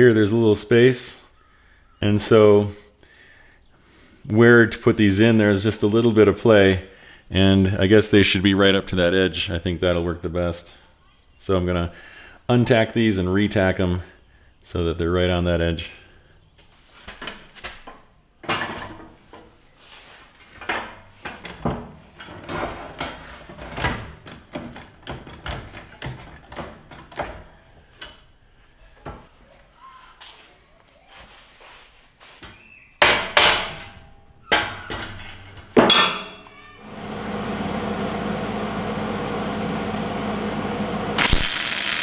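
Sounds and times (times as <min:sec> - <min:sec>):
steady hum: 0:36.9 - 0:42.0.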